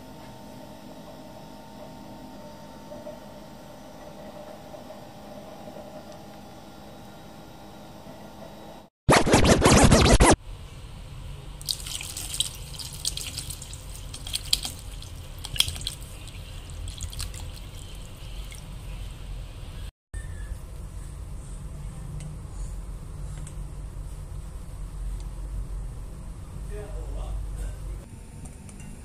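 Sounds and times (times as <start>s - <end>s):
water poured into metal bowl: 11.6s - 18.8s
small splashes and drips: 11.6s - 19.0s.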